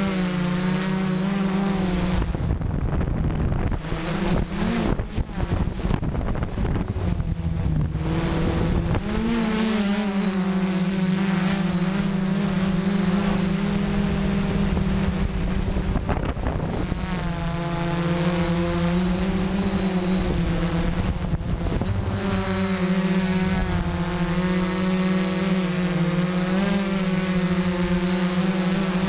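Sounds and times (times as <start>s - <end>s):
drone motors and propellers humming: 0.0s - 29.0s
wind rumble on microphone: 1.8s - 9.5s, 12.5s - 25.8s.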